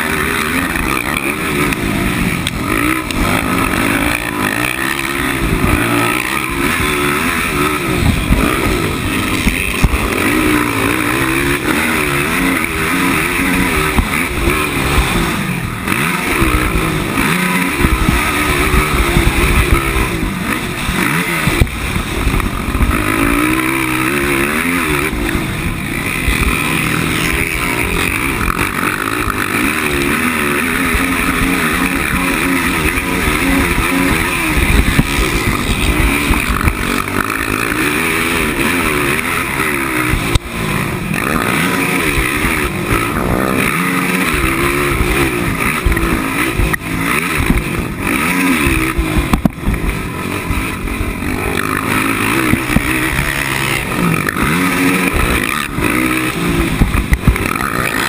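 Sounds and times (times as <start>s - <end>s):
quad engine revving: 0.0s - 58.0s.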